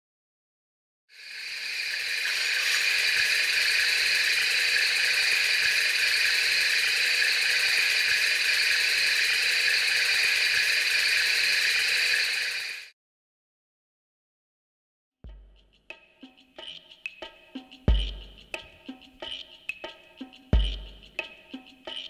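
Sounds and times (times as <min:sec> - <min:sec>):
steady hissing drone: 0:01.2 - 0:12.9.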